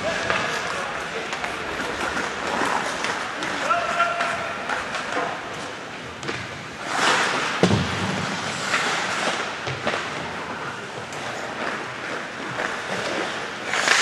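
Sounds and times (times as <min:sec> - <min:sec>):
skates scraping on ice: 0:00.0 - 0:14.0
bang against rink boards: 0:06.2 - 0:10.4.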